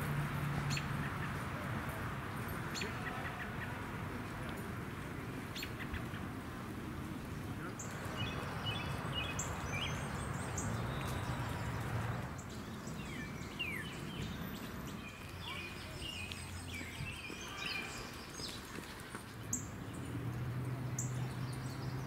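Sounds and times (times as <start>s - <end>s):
small birds chirping: 7.3s - 22.0s.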